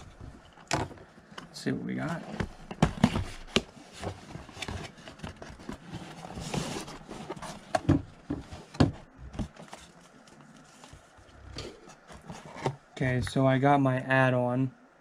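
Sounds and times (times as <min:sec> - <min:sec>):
cardboard rustling scrape: 0:00.0 - 0:12.8
cardboard knocking on table: 0:07.8 - 0:09.6.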